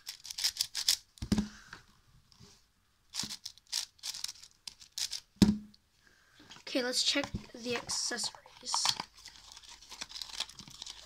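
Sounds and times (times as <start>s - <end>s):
puzzle cube clacking turns: 0.0s - 1.5s, 3.1s - 5.3s.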